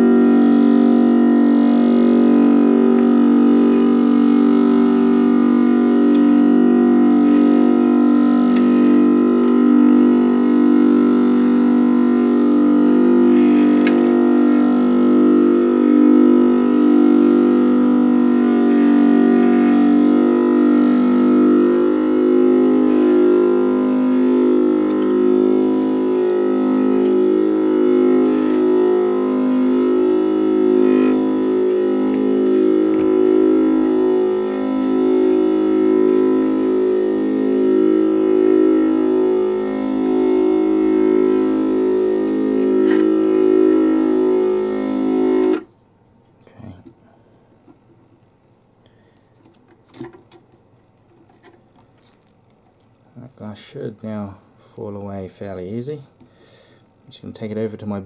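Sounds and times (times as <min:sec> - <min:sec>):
organ-like synthesizer music: 0:00.0 - 0:45.7.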